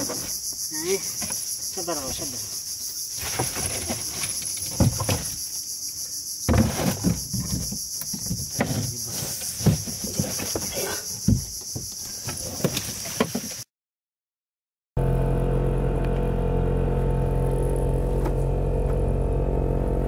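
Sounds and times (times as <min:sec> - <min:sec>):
high pulsing insect chorus: 0:00.0 - 0:13.6.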